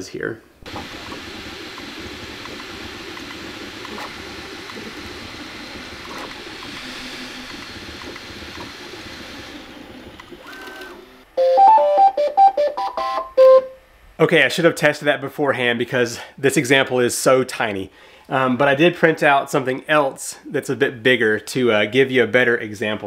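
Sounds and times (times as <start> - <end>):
printer stepper motors: 0.7 - 11.3
brief high tone: 11.4 - 13.8.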